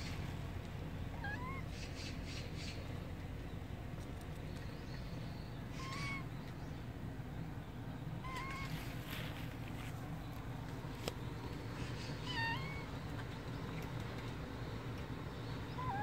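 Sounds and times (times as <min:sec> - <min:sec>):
cat mewing: 0:01.1 - 0:01.7, 0:08.2 - 0:08.8, 0:12.2 - 0:12.9.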